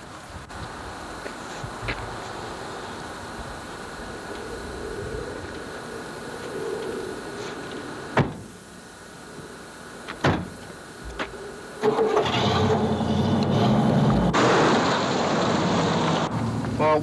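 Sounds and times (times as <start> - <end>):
car doors slamming: 8.2 - 8.5, 10.1 - 10.6
car engine starting and running: 11.7 - 17.0.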